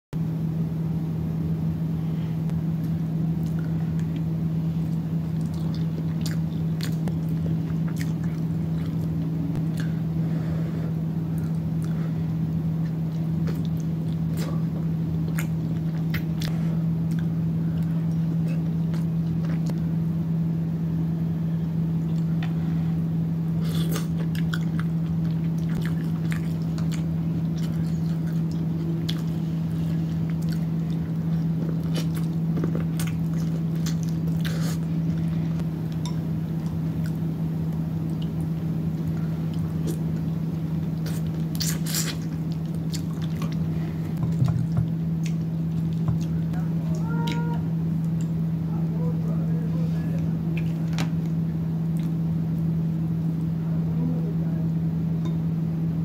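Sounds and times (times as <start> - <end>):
steady low hum: 0.1 - 56.0
chewing and lip smacking: 4.9 - 10.0, 12.8 - 19.8, 23.6 - 47.4, 50.5 - 52.2.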